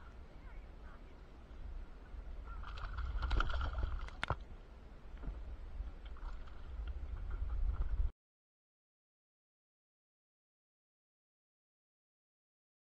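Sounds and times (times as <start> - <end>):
steady low rumble: 0.0 - 8.1
fish thrashing and splashing: 2.6 - 4.4.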